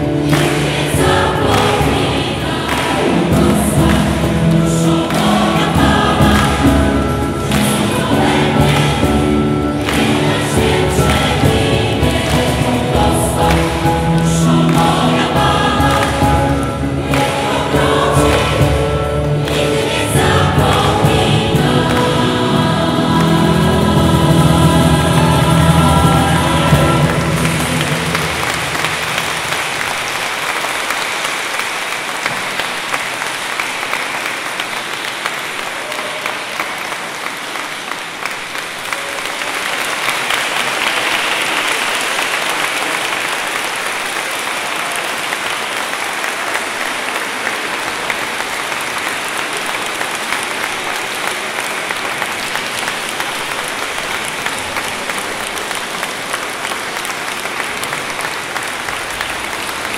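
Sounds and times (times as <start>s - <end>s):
audience applause: 0.0s - 59.9s.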